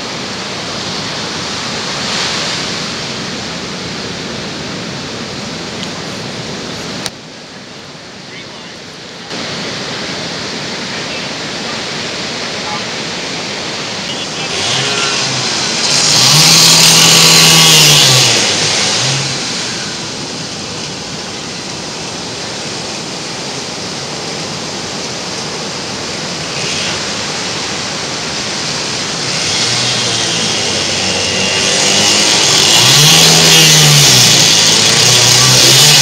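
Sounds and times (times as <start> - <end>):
surf washing around hull: 0.0 - 36.0
boat engine revving: 11.7 - 36.0.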